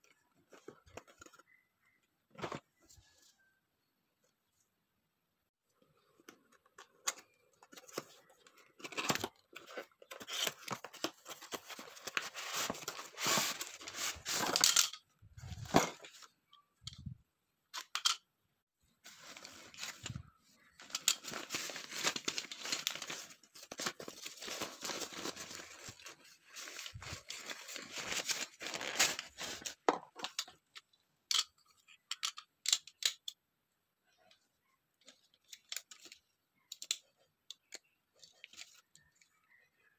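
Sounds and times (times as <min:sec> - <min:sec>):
packaging rustling and tearing: 0:07.2 - 0:14.8, 0:20.8 - 0:29.8.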